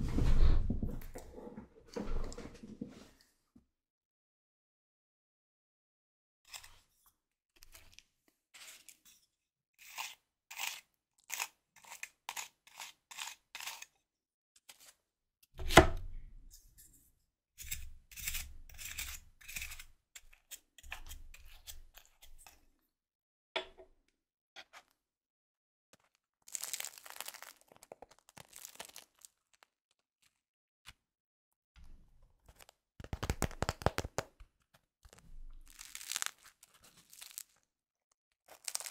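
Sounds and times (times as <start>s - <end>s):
bread crust crunching: 26.0s - 30.4s, 35.1s - 37.7s, 38.4s - 38.9s.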